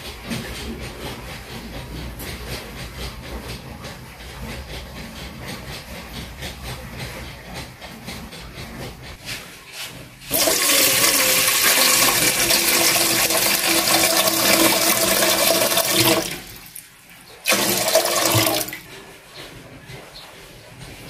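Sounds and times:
water pouring into metal pot: 10.3s - 16.6s, 17.5s - 18.7s.

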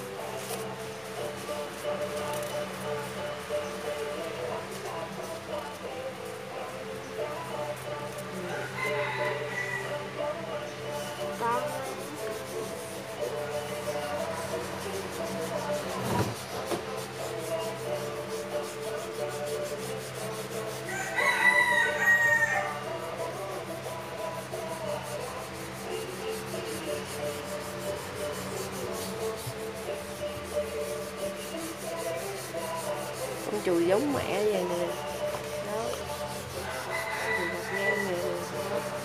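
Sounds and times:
fingers rubbing pastel on paper: 0.3s - 5.4s, 11.0s - 21.0s, 22.9s - 39.0s
rooster crowing: 8.4s - 10.3s, 20.9s - 23.2s, 36.5s - 39.0s.

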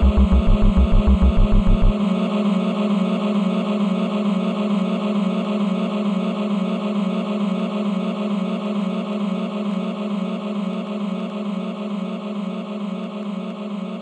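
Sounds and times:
sustained synth chords: 0.0s - 1.9s.

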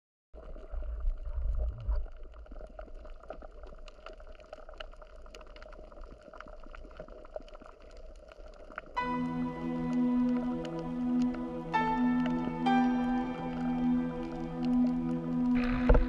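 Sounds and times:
crackling clicks underwater: 0.4s - 16.0s
faint steady hum: 9.0s - 16.0s.

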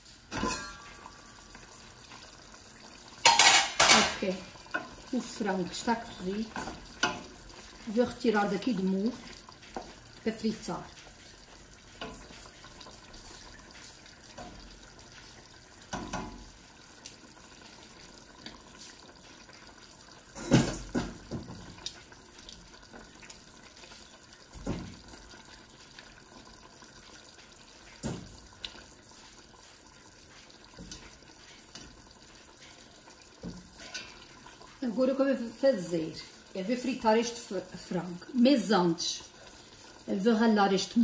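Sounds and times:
sauce dripping and splashing: 4.4s - 34.8s.

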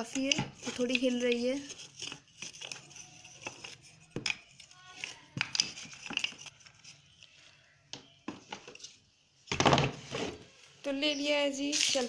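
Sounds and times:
wooden blocks knocking together: 0.0s - 6.7s.

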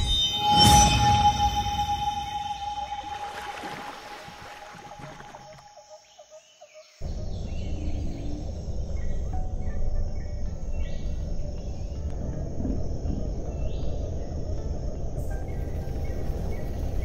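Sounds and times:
short high chirps: 0.0s - 3.8s
synthetic held tone: 0.0s - 3.9s.

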